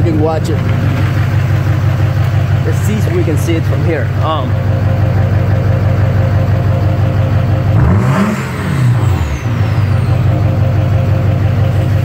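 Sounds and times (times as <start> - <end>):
diesel engine idling and revving: 0.0 - 12.0.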